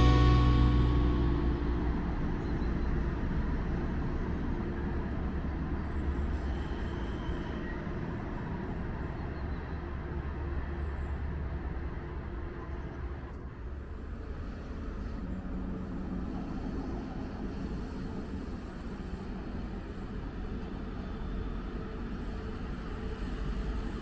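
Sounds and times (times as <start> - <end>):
passing train rumble: 0.0 - 24.0.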